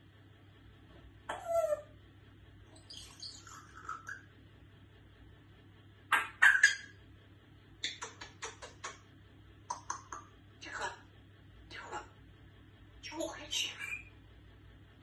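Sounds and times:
parrot calls: 1.3 - 2.0, 2.8 - 4.3, 6.1 - 7.0, 7.8 - 9.1.

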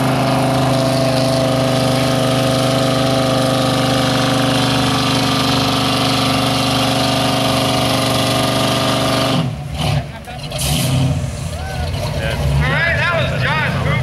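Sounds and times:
truck engine at high revs: 0.0 - 14.0.

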